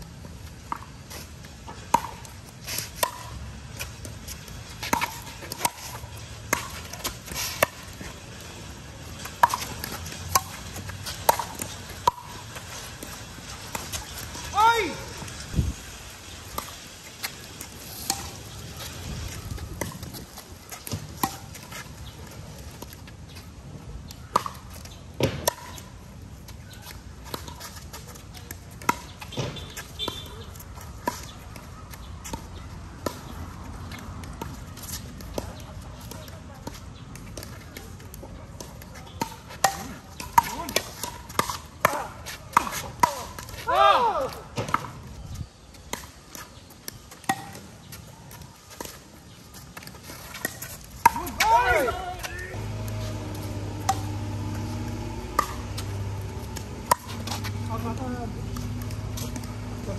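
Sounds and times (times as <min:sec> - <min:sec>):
pickleball paddle hits: 0:50.3 - 0:59.9.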